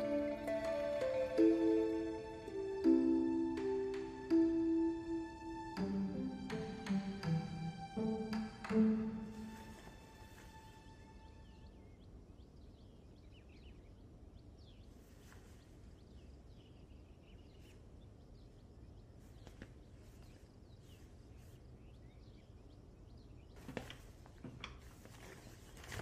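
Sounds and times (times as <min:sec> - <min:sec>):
small birds chirping: 0:05.8 - 0:26.0
low steady background hum: 0:07.4 - 0:26.0.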